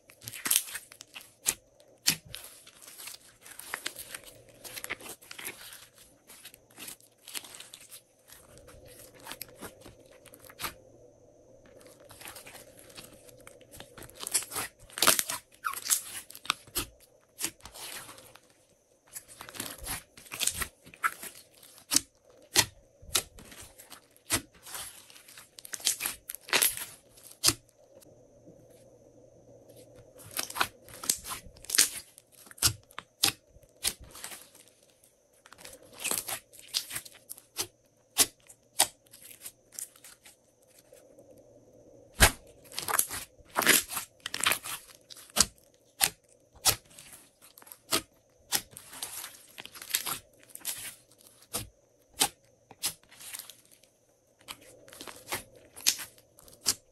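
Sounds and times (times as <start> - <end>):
slime crackling and popping: 12.0 - 18.4, 42.2 - 53.5, 54.9 - 56.8.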